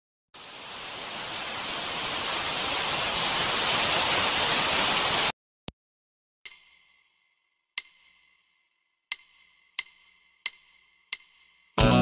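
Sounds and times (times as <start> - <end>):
television static hiss: 0.4 - 5.3.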